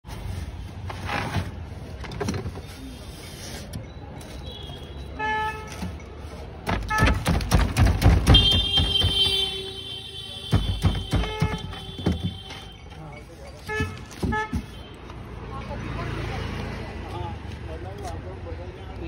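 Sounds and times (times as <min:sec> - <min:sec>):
street traffic: 0:00.0 - 0:19.0
vehicle horn toot: 0:08.2 - 0:12.9.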